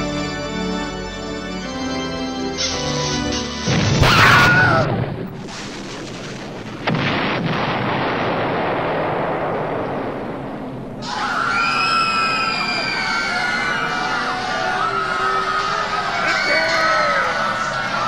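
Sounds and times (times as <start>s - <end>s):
organ music: 0.0s - 4.1s
explosion blast: 3.6s - 11.1s.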